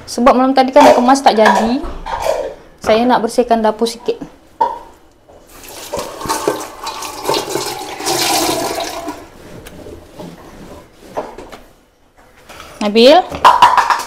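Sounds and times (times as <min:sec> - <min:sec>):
tap water splashing into sink: 0:05.6 - 0:09.2.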